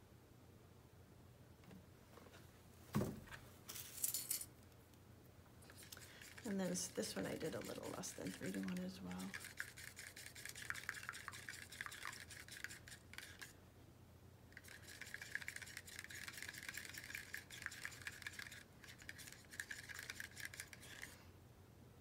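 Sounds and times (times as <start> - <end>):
stick scraping paint cup: 5.6 - 13.6, 14.6 - 21.2.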